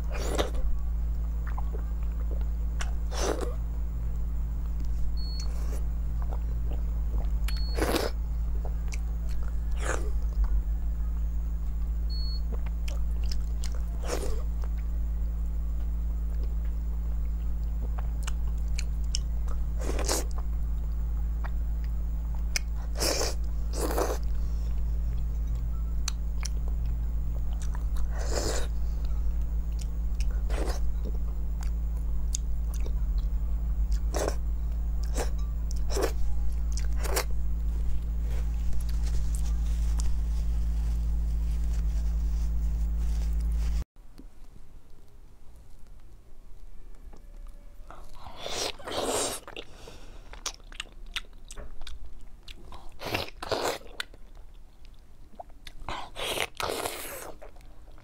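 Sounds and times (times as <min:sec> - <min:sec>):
crunchy chewing: 0:00.0 - 0:11.3, 0:12.1 - 0:15.0, 0:15.8 - 0:43.8, 0:47.4 - 0:58.0
steady low hum: 0:00.0 - 0:58.0.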